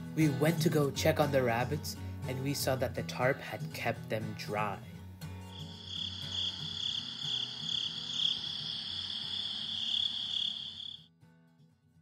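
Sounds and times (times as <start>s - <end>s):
night insects trilling: 5.5s - 11.0s.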